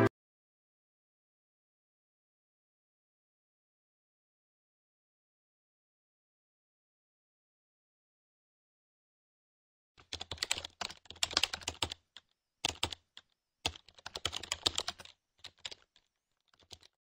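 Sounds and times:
computer keyboard typing: 0:10.0 - 0:12.0, 0:12.6 - 0:17.0.

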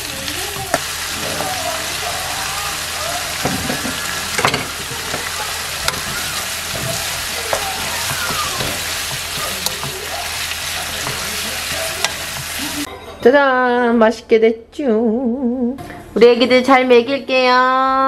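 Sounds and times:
meat sizzling in a frying pan: 0:00.0 - 0:12.9.

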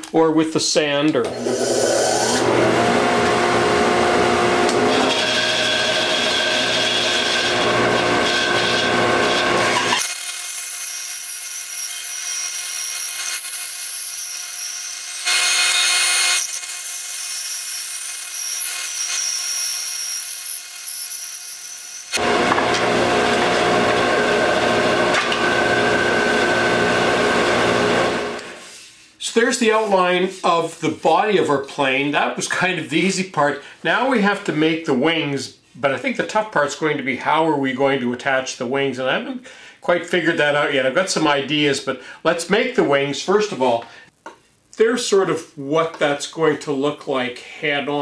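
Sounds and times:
bandsaw cutting wood: 0:01.3 - 0:28.6.

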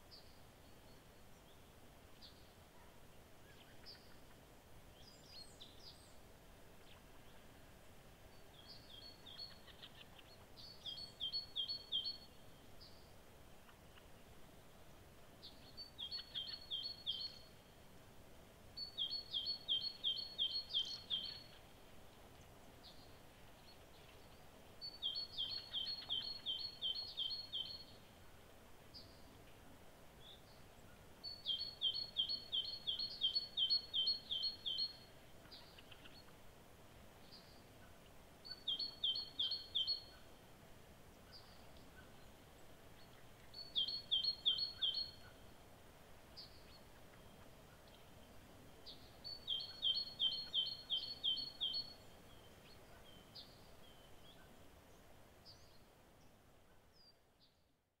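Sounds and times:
faint bird chirps: 0:00.0 - 0:07.6, 0:08.2 - 0:14.7, 0:15.4 - 0:17.8, 0:18.7 - 0:28.2, 0:30.2 - 0:36.5, 0:37.2 - 0:40.4, 0:41.1 - 0:45.6, 0:46.2 - 0:58.0
outdoor hiss: 0:45.2 - 0:49.5.

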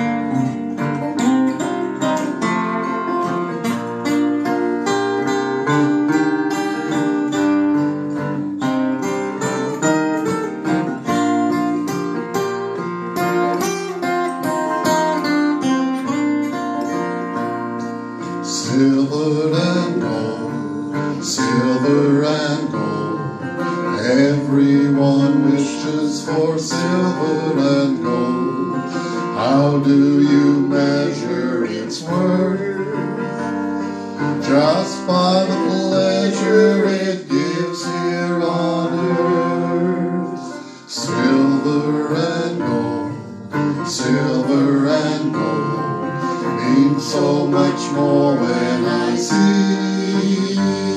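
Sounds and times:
acoustic guitars playing: 0:00.0 - 0:50.9.

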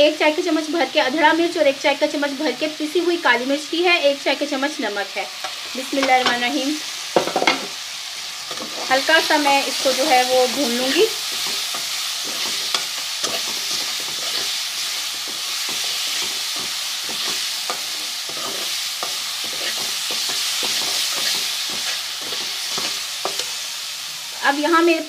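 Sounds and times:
masala sizzling in hot oil: 0:00.0 - 0:25.0
spoon scraping a pan: 0:08.4 - 0:23.6.

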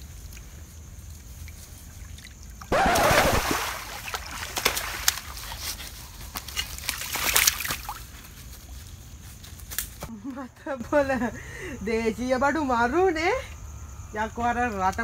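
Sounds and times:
water splashing and sloshing: 0:00.0 - 0:08.8
loud splash into water: 0:02.7 - 0:05.2.

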